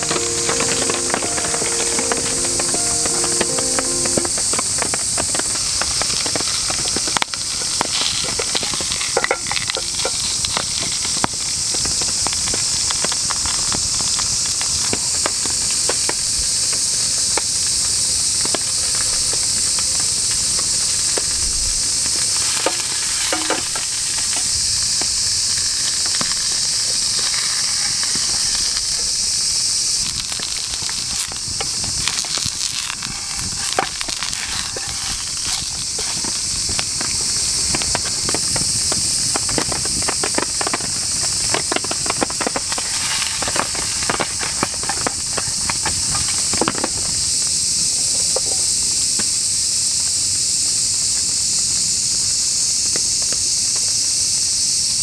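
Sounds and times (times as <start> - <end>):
small pops and crackles: 5.2 - 17.5, 30.0 - 47.0
meat sizzling in a tin: 6.0 - 14.4, 22.1 - 46.5.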